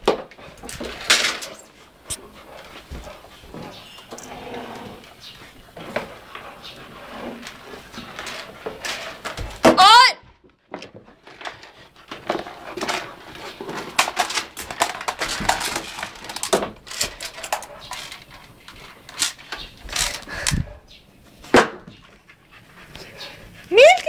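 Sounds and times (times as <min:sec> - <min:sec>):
puppy scrambling on wooden floor: 0:00.0 - 0:09.8
camera rustling: 0:13.0 - 0:20.9.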